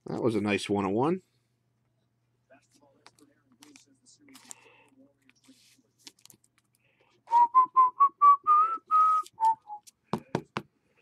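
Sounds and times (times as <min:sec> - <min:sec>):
person whistling a tune: 0:07.3 - 0:09.9.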